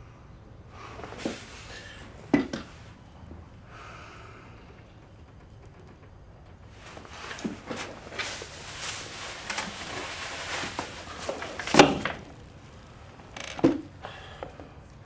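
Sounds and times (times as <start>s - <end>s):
rustling and handling noises: 6.6s - 13.8s.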